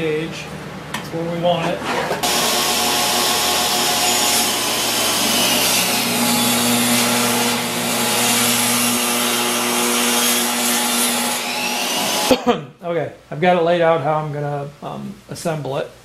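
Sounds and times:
table saw cutting wood: 1.8s - 12.4s.

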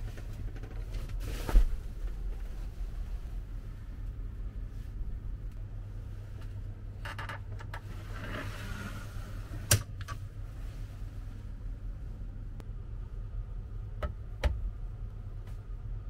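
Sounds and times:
blind rolling rustle: 0.0s - 3.5s, 7.7s - 9.8s
steady low hum: 0.0s - 16.0s.

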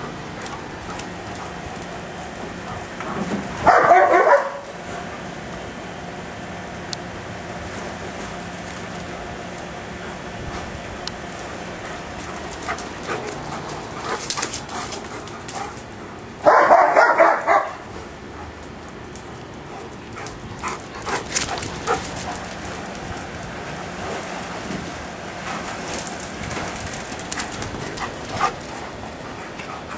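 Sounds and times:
dog barking: 3.6s - 4.7s, 16.4s - 17.8s.

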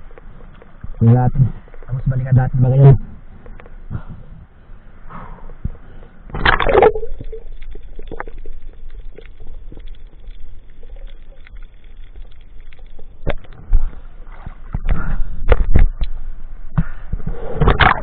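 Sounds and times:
underwater clicks and crackles: 0.0s - 4.5s, 5.5s - 18.0s
rushing splash: 6.4s - 8.4s.

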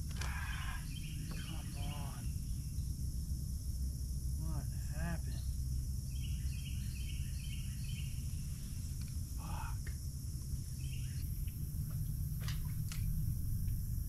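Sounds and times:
insect-like hiss: 0.0s - 14.0s
bird chirps: 0.3s - 2.9s, 5.3s - 8.3s, 10.7s - 11.4s
low rumble: 11.2s - 14.0s.

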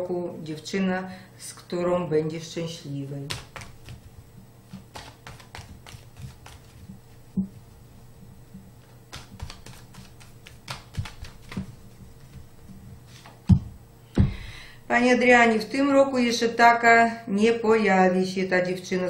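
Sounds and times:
cards being shuffled: 3.2s - 7.3s, 8.8s - 13.4s.

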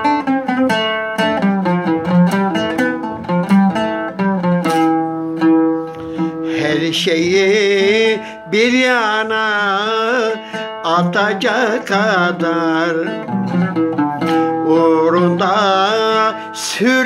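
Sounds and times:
kanun plucked: 0.0s - 16.3s
man singing wordless tones: 6.2s - 13.8s, 14.5s - 17.0s.

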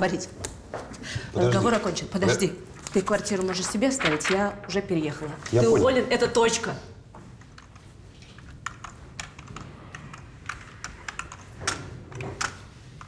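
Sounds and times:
keyboard typing clicks: 8.6s - 12.6s.

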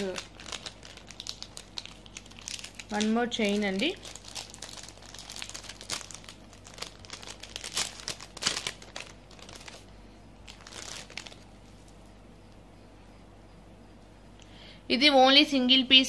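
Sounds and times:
crinkly packaging rustling: 0.0s - 12.1s.

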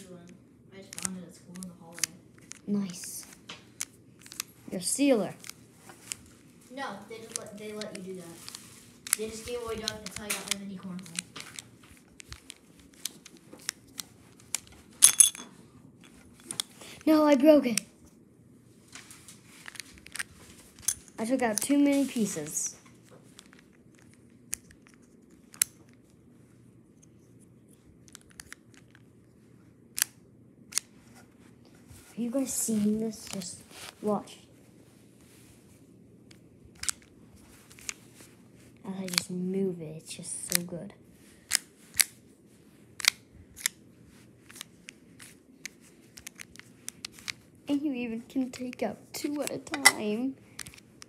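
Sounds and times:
plastic tiles clicking: 7.2s - 11.6s.

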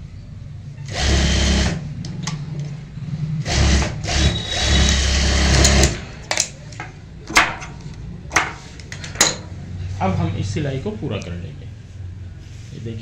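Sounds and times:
sewing machine stitching: 0.9s - 1.8s, 3.4s - 6.0s.

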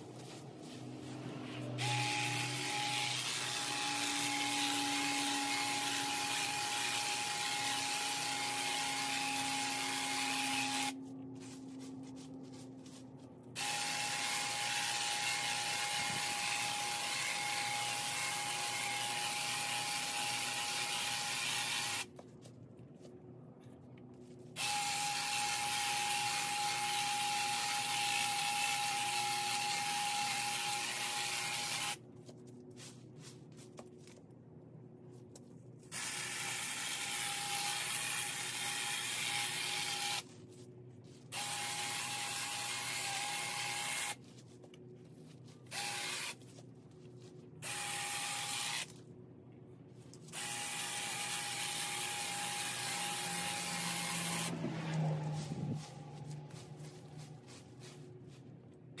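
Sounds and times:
electric hedge trimmer whining: 1.6s - 11.0s, 13.6s - 22.1s, 24.6s - 32.0s, 45.7s - 46.4s, 50.4s - 55.7s.

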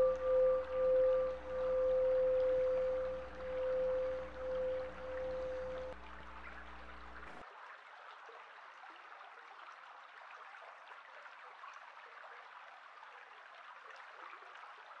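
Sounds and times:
low held musical tone: 0.0s - 7.4s.

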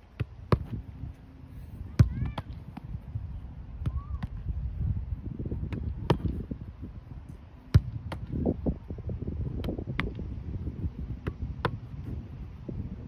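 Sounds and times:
ball kicked and caught thumps: 0.1s - 0.8s, 1.9s - 3.0s, 5.6s - 6.6s, 7.7s - 8.5s, 9.5s - 10.3s, 11.2s - 12.2s.

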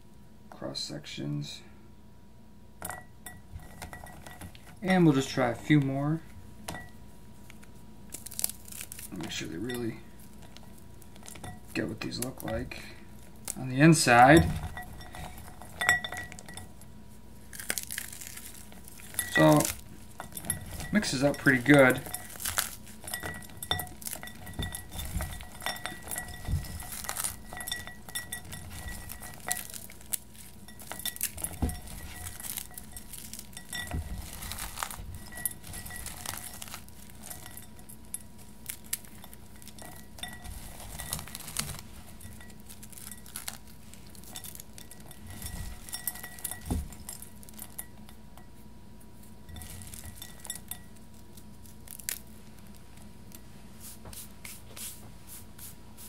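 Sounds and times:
pretzels crunching in glass bowl: 8.1s - 16.8s, 17.4s - 47.8s, 49.5s - 52.8s.

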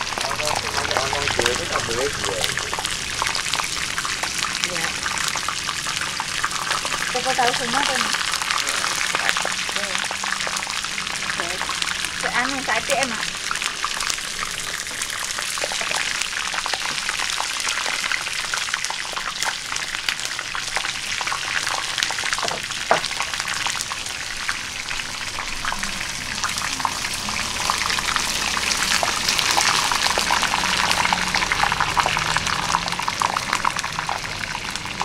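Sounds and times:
food sizzling in hot oil: 0.0s - 35.0s.

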